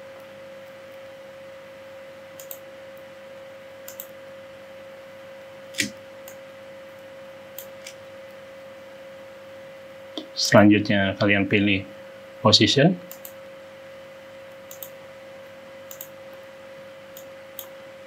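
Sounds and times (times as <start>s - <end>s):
computer mouse clicks: 2.4s - 2.6s, 3.8s - 4.2s, 13.1s - 13.4s, 14.6s - 15.0s, 15.9s - 16.4s, 17.1s - 17.8s.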